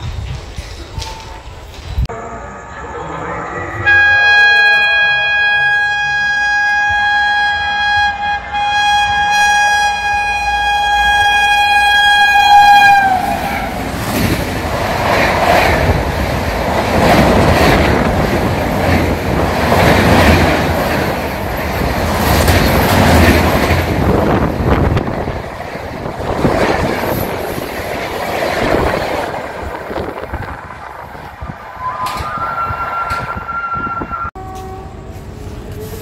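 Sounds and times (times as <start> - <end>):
train horn blast: 3.8 - 13.7, 31.9 - 36.0
train coaches rushing past: 12.0 - 36.0
wheels clattering over rail joints: 13.8 - 31.4.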